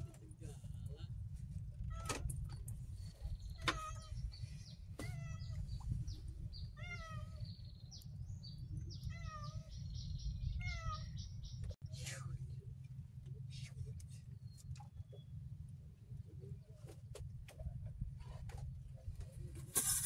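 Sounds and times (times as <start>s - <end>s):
steady low rumble: 0.0s - 19.8s
high mewing animal calls: 3.5s - 4.3s, 8.9s - 9.9s, 10.5s - 11.4s.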